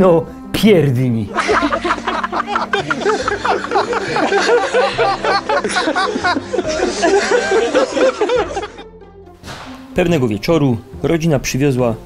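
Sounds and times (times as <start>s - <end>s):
background music: 0.0s - 12.0s
laugh track: 1.3s - 9.0s.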